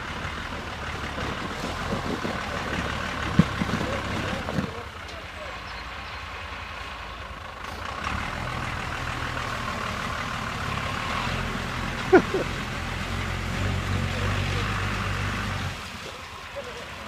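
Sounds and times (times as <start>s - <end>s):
tyres churning mud and slush: 0.0s - 17.0s
car engine revving: 8.0s - 16.0s.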